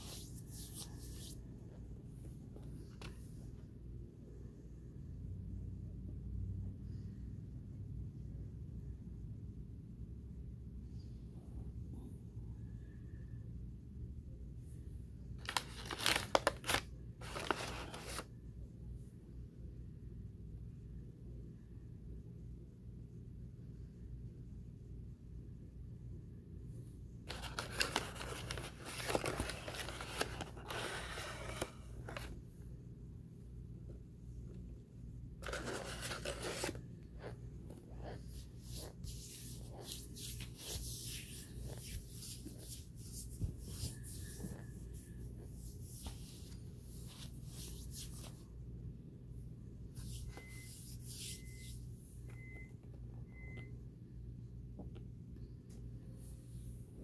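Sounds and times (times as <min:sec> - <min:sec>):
low steady hum: 0:00.0 - 0:57.0
paper bag rustling and crinkling: 0:15.4 - 0:18.2, 0:27.3 - 0:32.4, 0:35.4 - 0:36.8.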